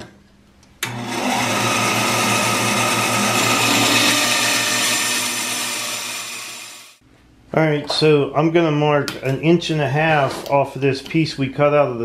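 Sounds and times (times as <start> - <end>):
bandsaw cutting plywood: 0.8 - 7.0.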